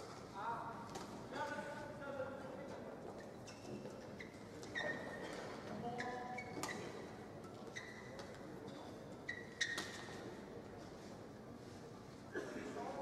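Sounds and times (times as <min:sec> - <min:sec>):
shoes squeaking on court: 0:03.1 - 0:08.4, 0:09.2 - 0:10.3.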